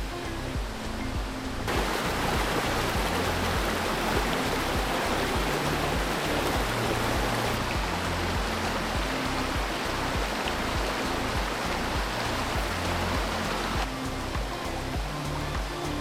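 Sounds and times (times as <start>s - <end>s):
creek water rushing over rocks: 0.0s - 16.0s
music with bass beat: 0.0s - 16.0s.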